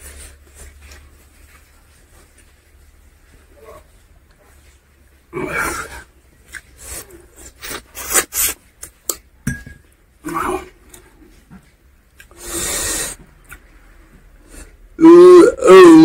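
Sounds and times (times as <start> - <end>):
wet chewing and slurping: 6.3 - 9.0.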